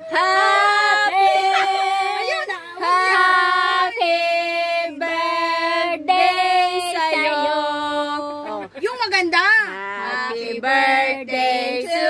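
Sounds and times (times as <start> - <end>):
high child-like voice singing: 0.0 - 3.3.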